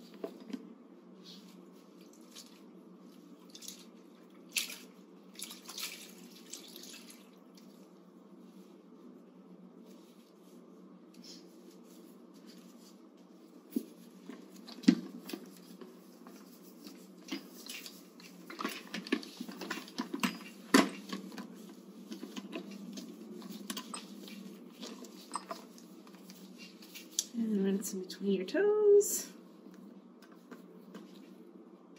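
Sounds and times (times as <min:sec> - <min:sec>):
water sloshing and dripping: 0:03.3 - 0:07.9.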